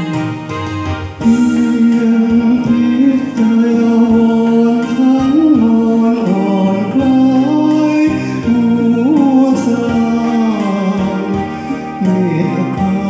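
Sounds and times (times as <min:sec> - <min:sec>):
karaoke backing track: 0:00.0 - 0:13.0
man singing into a microphone: 0:01.2 - 0:13.0.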